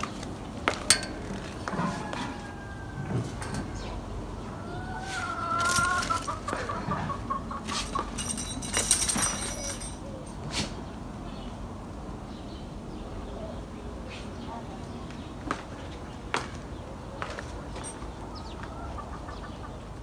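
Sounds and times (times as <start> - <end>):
rooster crowing: 1.6 - 7.2.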